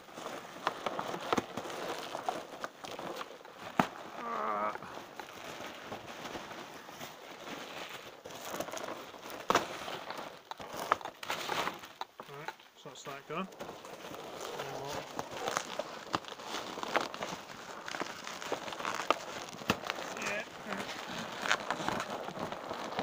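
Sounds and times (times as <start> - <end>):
bubble wrap and bag crinkling: 0.0 - 23.0
sharp bubble wrap snaps: 9.4 - 12.2, 14.4 - 23.0.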